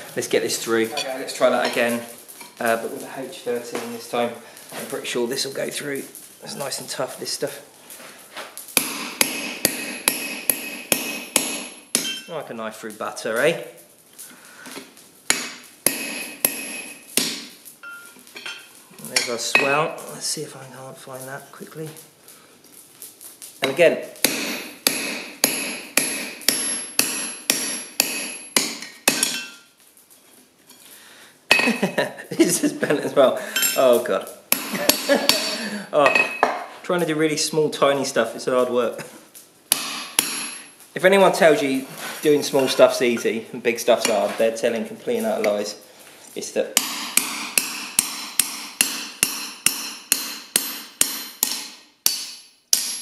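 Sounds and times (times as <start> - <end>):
hammer striking metal punch: 8.8 - 12.3, 15.3 - 18.6, 24.2 - 29.6, 39.7 - 40.6, 46.8 - 53.0.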